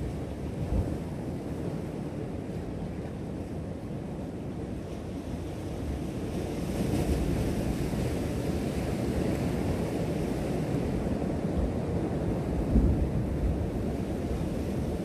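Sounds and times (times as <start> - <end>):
ocean surf on rocks: 0.0 - 15.0
wind buffeting microphone: 5.2 - 15.0.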